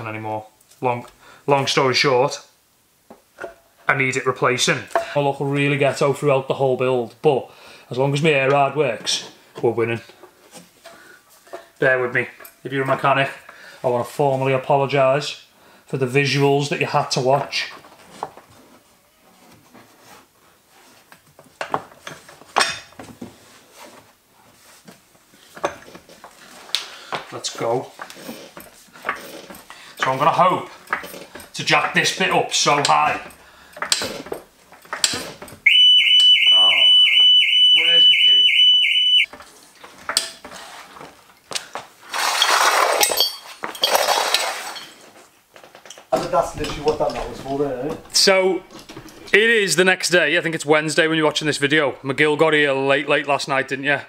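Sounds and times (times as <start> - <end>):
metal rattling and scraping: 27.3 - 35.6, 42.0 - 45.2, 46.1 - 49.6.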